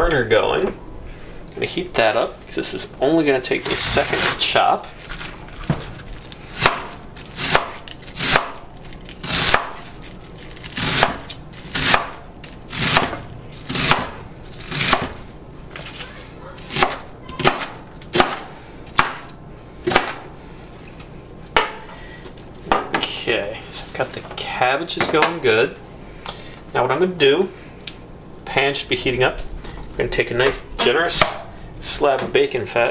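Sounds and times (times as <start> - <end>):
knife chopping on wooden board: 6.6 - 8.6, 9.2 - 9.9, 10.8 - 15.2, 16.7 - 20.2.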